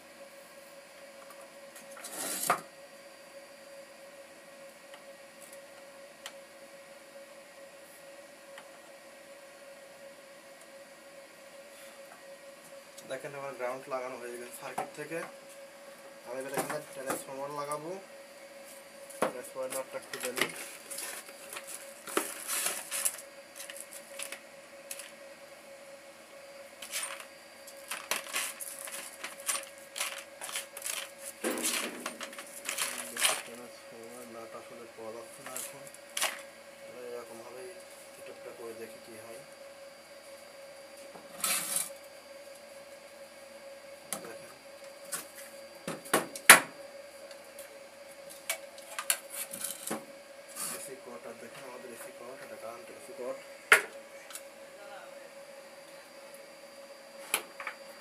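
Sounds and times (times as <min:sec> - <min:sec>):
steady hum: 0:00.0 - 0:58.0
plastic bag rustling: 0:27.9 - 0:33.5.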